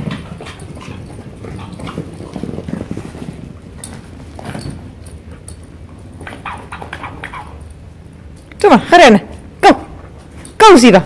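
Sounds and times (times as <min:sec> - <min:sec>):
dog paws scuffling and thudding: 0:00.0 - 0:08.6.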